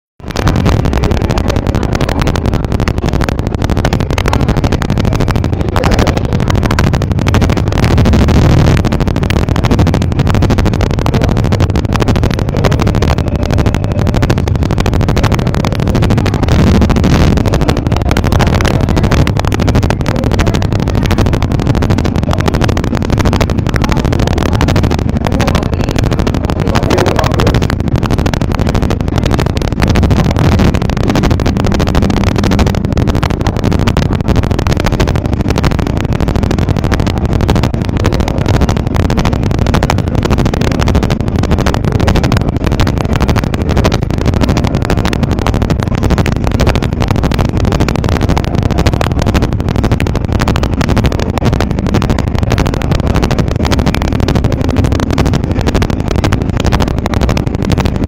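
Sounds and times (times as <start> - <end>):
boat engine rumbling: 0.0 - 58.0.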